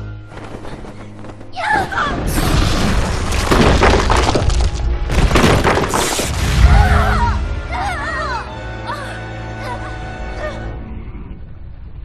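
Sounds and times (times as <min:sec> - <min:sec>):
film music: 0:00.0 - 0:12.0
crashes and shattering impacts: 0:02.2 - 0:07.0.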